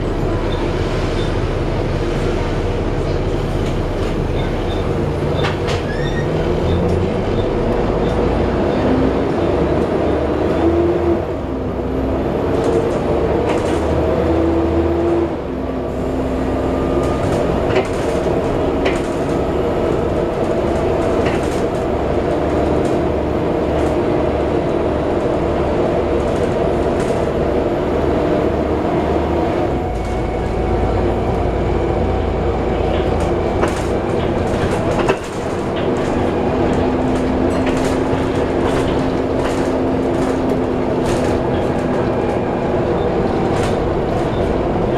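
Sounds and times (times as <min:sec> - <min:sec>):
bus engine and cooling fan: 0:00.0 - 0:44.9.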